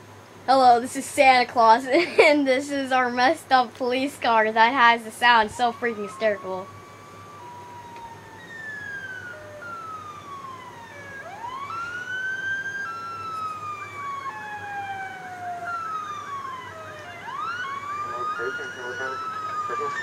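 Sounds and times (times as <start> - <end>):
police siren wailing: 4.5 - 20.0.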